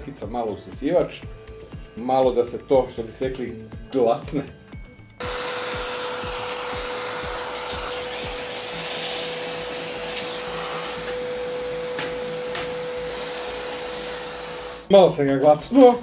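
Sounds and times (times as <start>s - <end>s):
vacuum cleaner motor whine: 5.2s - 14.9s.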